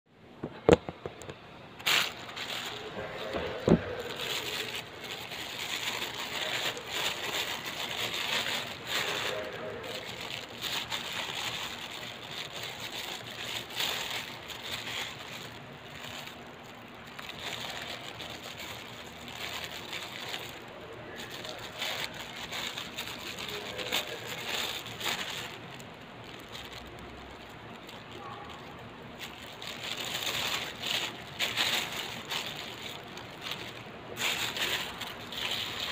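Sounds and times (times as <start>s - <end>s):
phone being handled: 0.4s - 1.5s, 2.8s - 5.0s
plastic bag crinkling: 0.4s - 35.9s.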